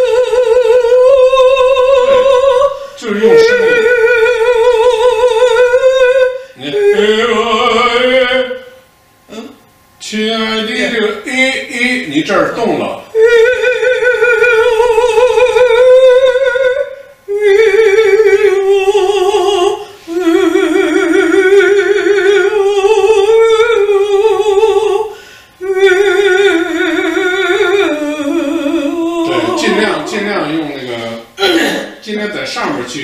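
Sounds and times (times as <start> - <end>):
woman singing with vibrato: 0.0 - 9.7, 13.1 - 32.0
singer breathing: 2.7 - 3.0, 25.1 - 25.6.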